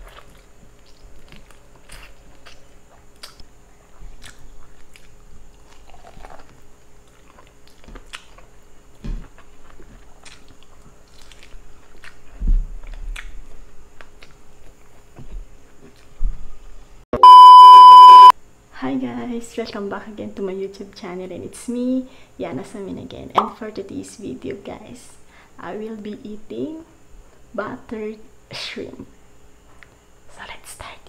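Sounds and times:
person chewing: 0.0 - 8.5, 9.2 - 15.0.

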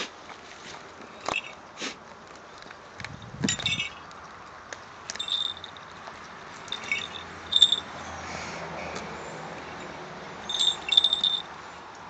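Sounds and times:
small bells jingling: 1.2 - 1.6, 3.2 - 4.1, 5.2 - 6.0, 6.6 - 7.9, 10.4 - 11.5.

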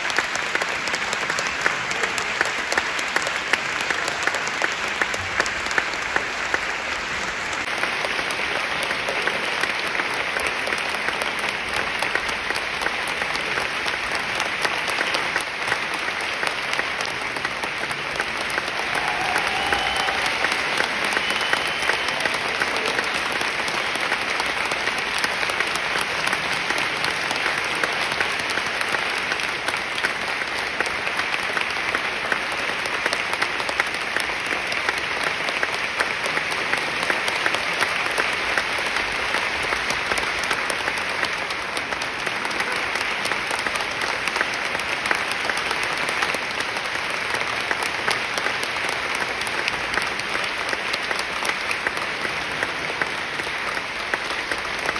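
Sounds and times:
audience applauding: 0.0 - 54.9.

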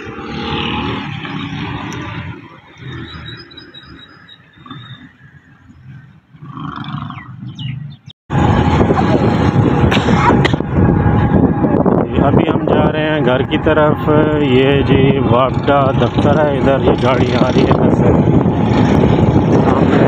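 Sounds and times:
low street rumble: 0.0 - 20.0
motorbike running: 0.0 - 20.0
wind rushing on microphone: 0.0 - 20.0
bird chirps: 2.6 - 6.2, 6.8 - 8.1.

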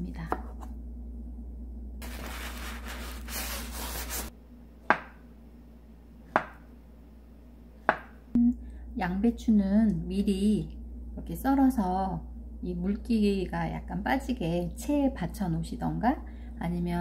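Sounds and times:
knife scraping on cutting board: 2.0 - 4.3
knife tapping cutting board: 4.9 - 5.2, 6.3 - 6.6, 7.8 - 8.2.

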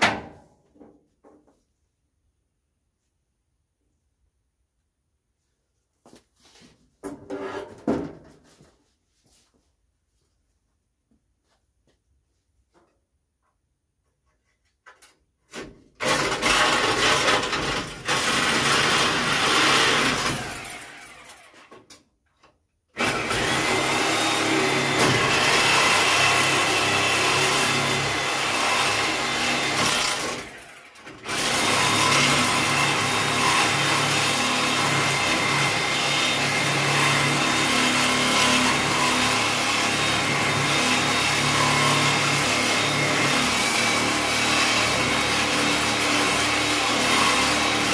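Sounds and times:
power tool grinding metal: 16.0 - 21.7, 23.0 - 47.9.

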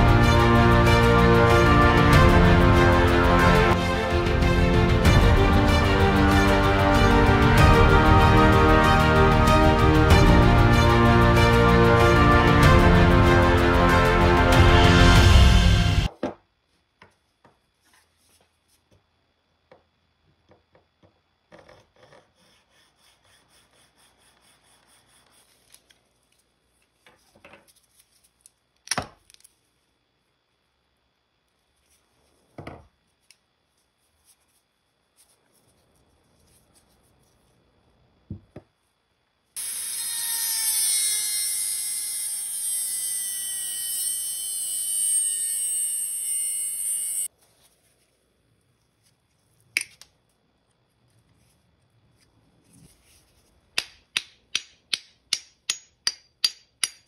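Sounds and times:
rotary tool grinding metal: 39.6 - 47.3.

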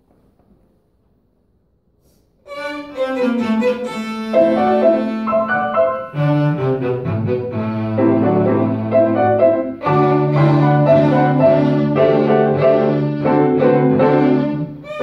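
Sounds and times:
violin: 2.4 - 15.0
cello: 2.5 - 15.0
grand piano: 3.4 - 15.0.

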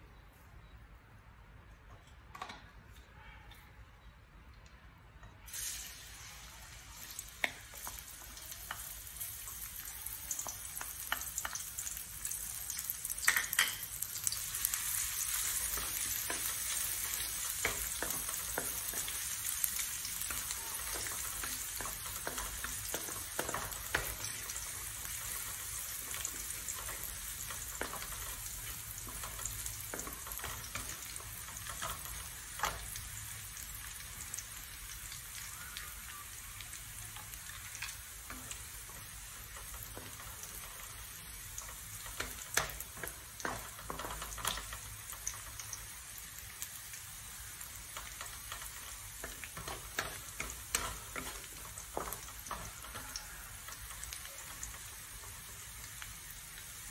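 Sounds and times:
frying hiss in wok: 5.2 - 56.9
spatula tapping and scraping pan: 15.3 - 33.0, 37.2 - 45.7, 47.9 - 55.4.

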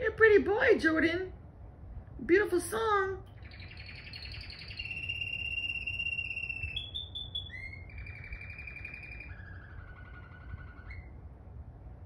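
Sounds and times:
canary singing trills: 3.3 - 11.4.

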